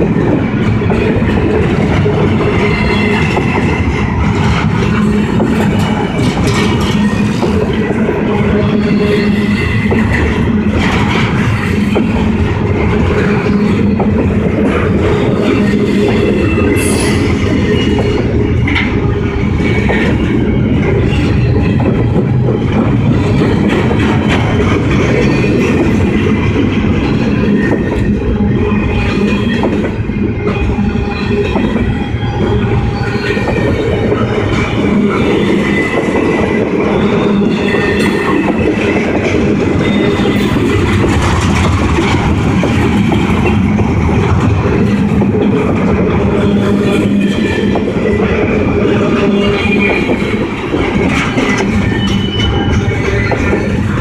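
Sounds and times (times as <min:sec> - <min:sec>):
freight train wheels rumbling: 0:00.0 - 0:54.0
high wheel squeals: 0:27.0 - 0:40.9, 0:44.8 - 0:54.0.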